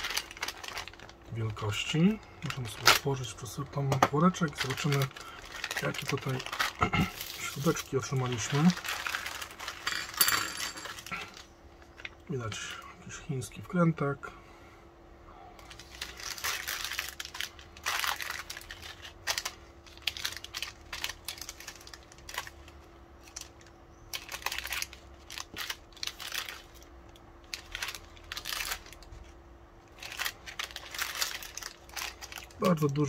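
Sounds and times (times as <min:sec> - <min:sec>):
plastic bags crinkling: 0:00.0 - 0:12.2, 0:15.6 - 0:33.0
small screws shifting: 0:09.6 - 0:11.3.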